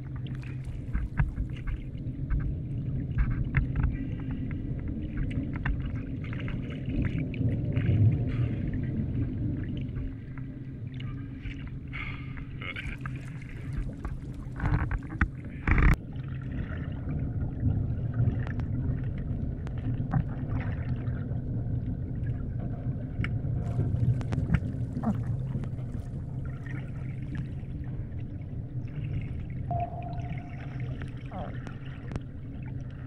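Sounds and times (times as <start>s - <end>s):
underwater rumble of moving water: 0.0s - 33.0s
underwater clicks: 0.1s - 4.3s, 12.8s - 16.0s, 23.2s - 26.2s.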